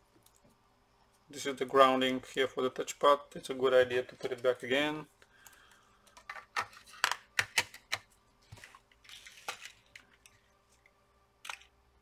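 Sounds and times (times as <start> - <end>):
small clicks of laptop parts: 9.2 - 11.7.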